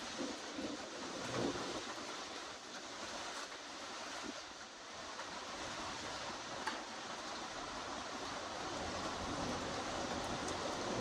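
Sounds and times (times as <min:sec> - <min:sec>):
wind and rain in trees: 0:00.0 - 0:11.0.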